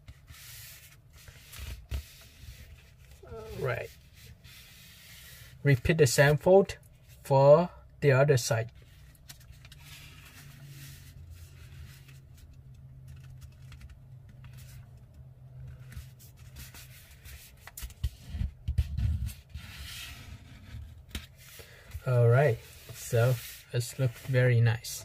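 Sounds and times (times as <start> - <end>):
paper rustling and sliding: 8.8 - 14.9, 15.6 - 25.0.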